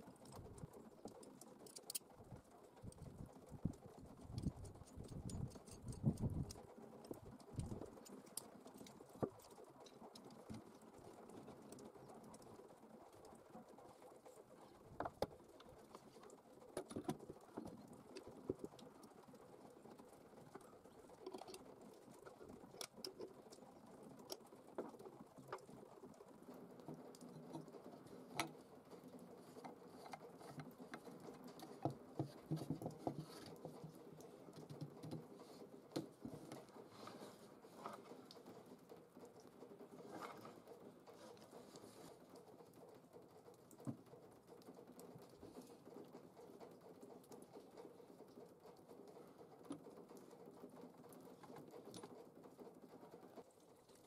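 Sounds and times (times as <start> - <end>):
small metal parts clicking: 4.3 - 9.5.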